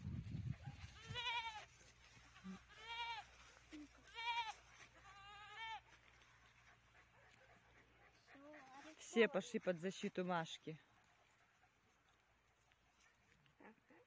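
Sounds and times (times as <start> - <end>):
goats bleating: 0.9 - 1.7, 2.4 - 6.0.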